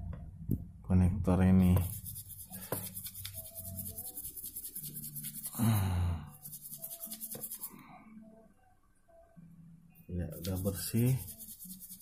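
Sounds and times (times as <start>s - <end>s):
brush scrubbing connector: 10.4s - 12.0s.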